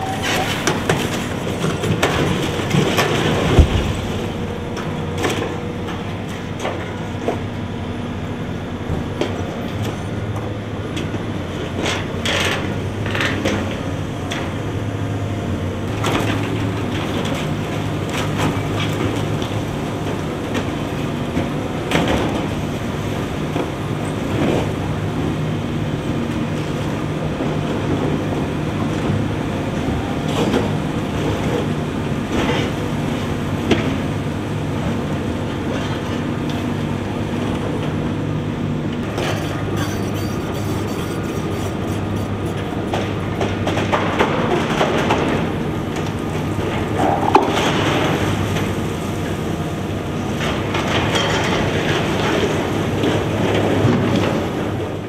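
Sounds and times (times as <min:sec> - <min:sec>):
excavator diesel engines running: 0:00.0 - 0:55.0.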